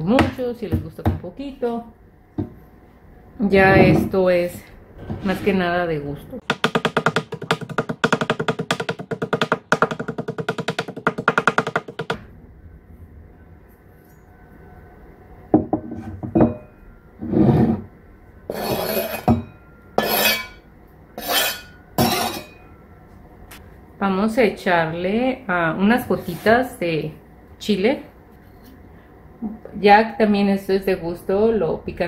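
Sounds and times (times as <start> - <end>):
knife scraping cutting board: 18.5 - 19.4, 20.0 - 20.6, 21.2 - 22.5.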